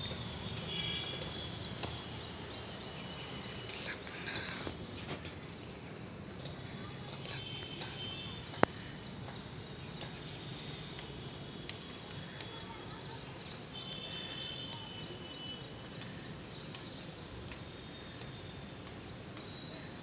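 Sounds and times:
city background noise: 0.0 - 20.0
faint clicks: 6.4 - 9.4, 10.0 - 12.8, 15.8 - 19.5.

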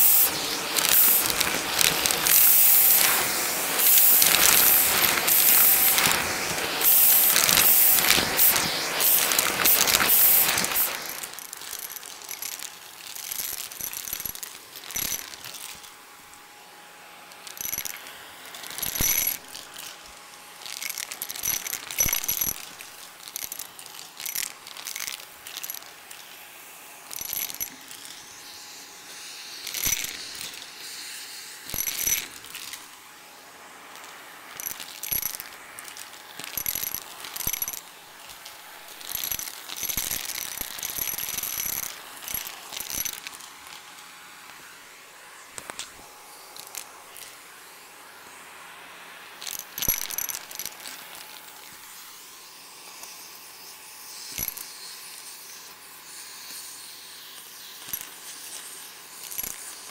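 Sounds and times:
coins rattling and clinking: 0.0 - 16.0, 17.3 - 26.4, 27.1 - 28.5, 29.4 - 30.8, 31.6 - 32.9, 33.9 - 44.1, 46.6 - 47.4, 49.4 - 51.9, 54.2 - 55.4, 57.2 - 59.9
vacuum cleaner running over carpet: 0.0 - 59.9.

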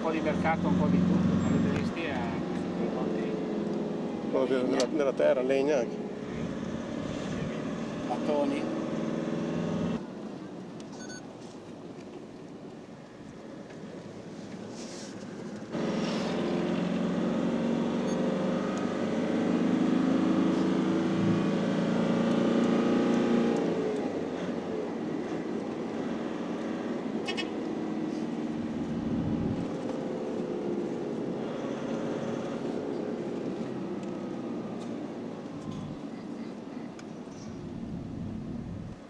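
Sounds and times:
vehicle engine running under load: 0.0 - 5.1, 15.7 - 36.4, 37.3 - 39.0.

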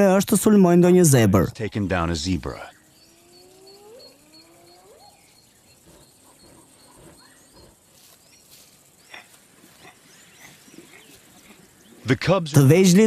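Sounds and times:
high bird chirps: 1.7 - 12.1
rising animal calls: 2.0 - 12.1.

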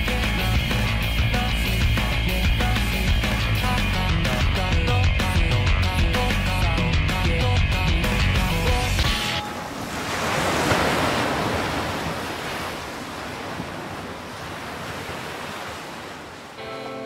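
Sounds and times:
rock music: 0.0 - 9.5, 16.6 - 17.0
ocean wave breaking: 9.0 - 17.0.

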